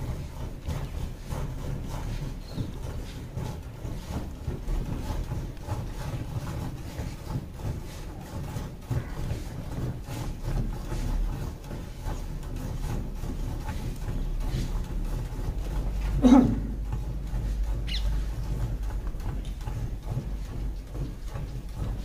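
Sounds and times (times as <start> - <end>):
low steady rumble: 0.0 - 22.0.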